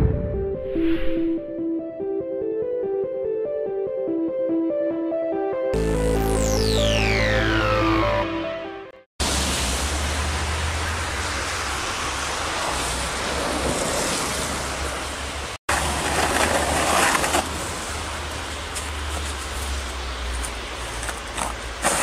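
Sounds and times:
intro music: 0.0s - 9.0s
plastic shovel scraping snow: 15.7s - 17.8s, 21.4s - 22.0s.

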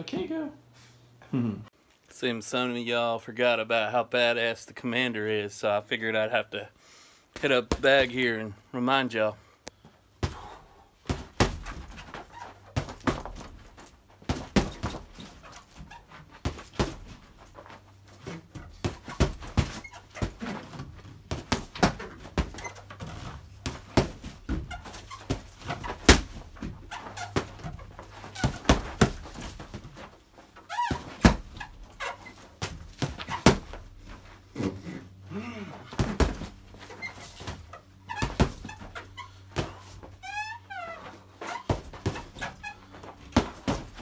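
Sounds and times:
punches thudding on heavy bag: 7.4s - 8.2s, 10.2s - 30.2s, 30.8s - 40.2s, 41.5s - 44.0s.

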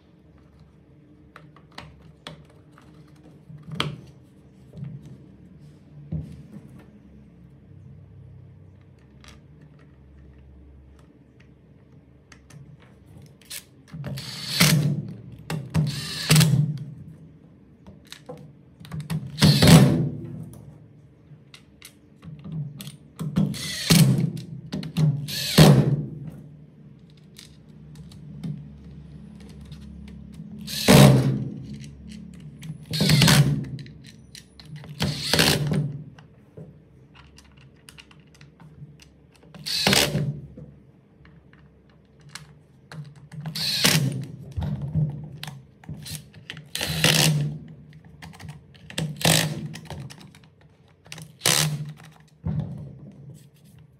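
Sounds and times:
impact driver bursts: 14.2s - 15.0s, 15.8s - 16.6s, 19.4s - 20.0s, 23.4s - 24.2s, 25.2s - 25.9s, 30.6s - 31.5s, 35.0s - 35.7s, 39.6s - 40.3s, 43.5s - 44.2s.

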